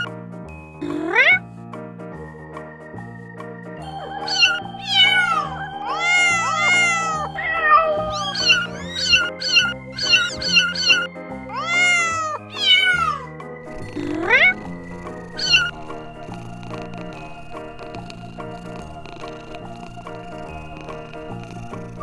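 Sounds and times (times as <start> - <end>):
background music with held notes: 0.0 - 22.0
kittens mewing: 0.8 - 1.4, 4.0 - 16.9.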